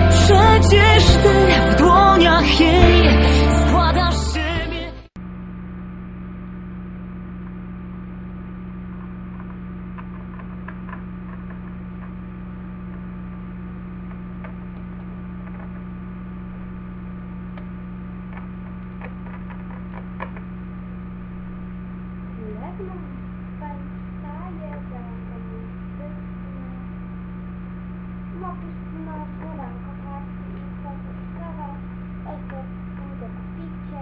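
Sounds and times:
pop music: 0:00.0 - 0:05.1
electrical mains hum: 0:00.0 - 0:34.0.

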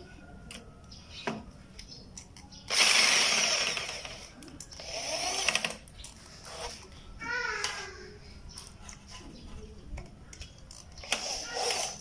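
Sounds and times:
electric drill driving a screw: 0:02.7 - 0:05.8, 0:11.0 - 0:12.0.

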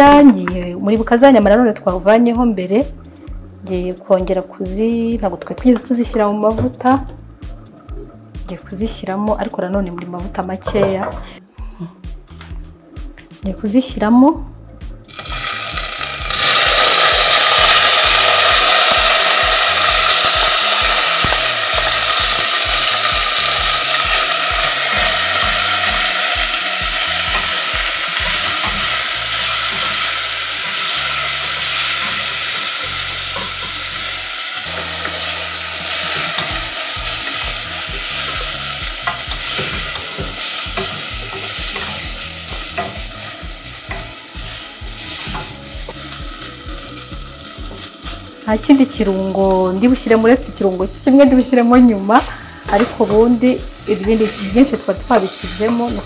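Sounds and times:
meat sizzling in a pot: 0:15.1 - 0:56.0.

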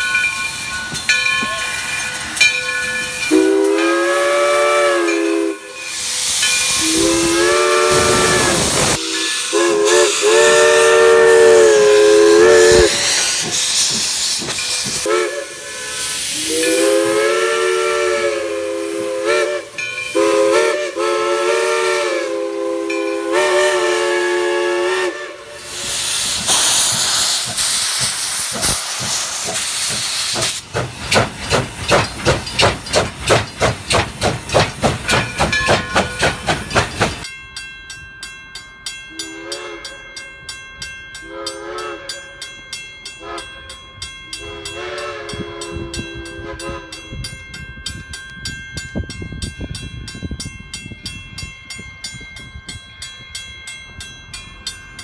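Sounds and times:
steady hiss of steam: 0:00.0 - 0:37.3
steam locomotive exhaust chuffing: 0:00.0 - 0:37.4
steam whistle blasts: 0:03.2 - 0:14.0, 0:14.8 - 0:27.0, 0:39.1 - 0:40.0, 0:41.3 - 0:42.3, 0:43.2 - 0:43.5, 0:44.4 - 0:47.1.

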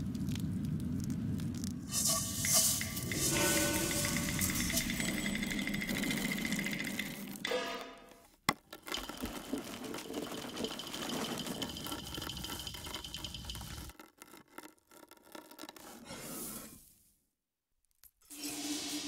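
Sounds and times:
rolling pin crushing peppercorns: 0:02.0 - 0:15.9
peppercorns scattering onto wooden board: 0:08.5 - 0:14.0.

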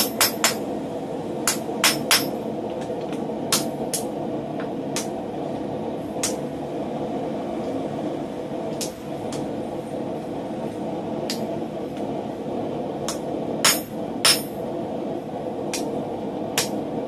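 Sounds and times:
hammer striking steel on anvil: 0:00.0 - 0:00.6, 0:01.5 - 0:02.4, 0:13.1 - 0:14.6
low background rumble: 0:00.0 - 0:17.0.

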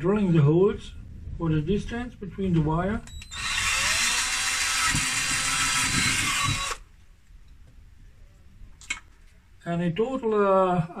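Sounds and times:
cordless drill boring through plastic: 0:03.1 - 0:06.9.

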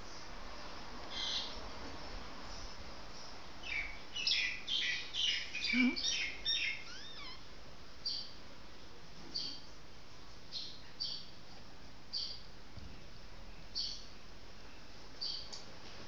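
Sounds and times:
puppy squeaking and whining: 0:06.8 - 0:07.4.

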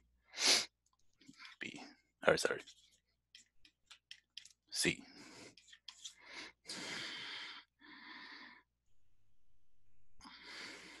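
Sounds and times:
person breathing: 0:05.1 - 0:08.7, 0:10.2 - 0:11.0.

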